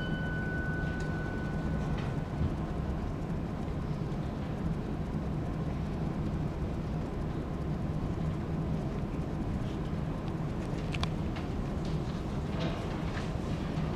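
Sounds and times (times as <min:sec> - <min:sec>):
low rumble of room noise: 0:00.0 - 0:13.9.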